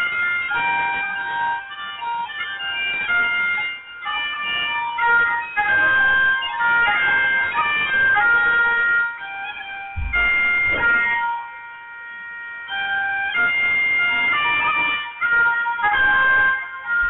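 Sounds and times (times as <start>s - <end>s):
pipes playing a melody: 0.0s - 17.0s
low thump of handling noise: 10.0s - 11.1s.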